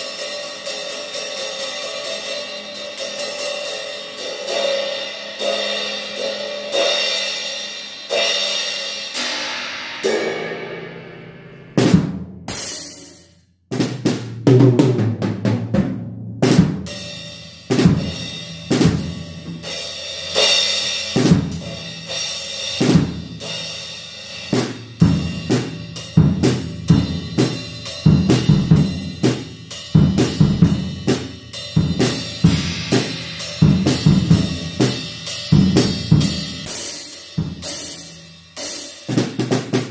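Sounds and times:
drum kit playing: 0.0 - 39.9.

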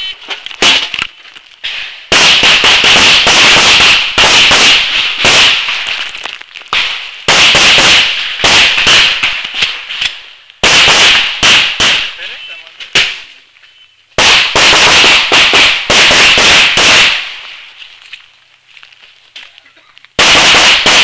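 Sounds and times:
pistol shots: 2.1 - 6.0, 6.7 - 9.8, 10.6 - 13.2, 14.2 - 17.4, 20.2 - 21.0.

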